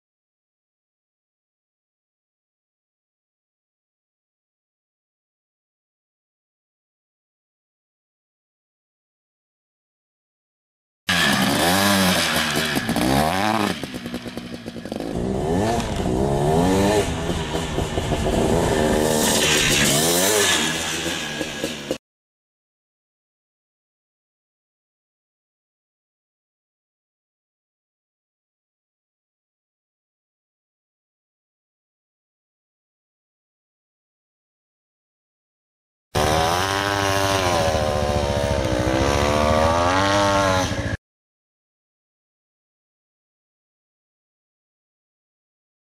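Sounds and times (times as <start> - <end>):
dirt bike engine revving: 11.1 - 22.0, 36.2 - 41.0.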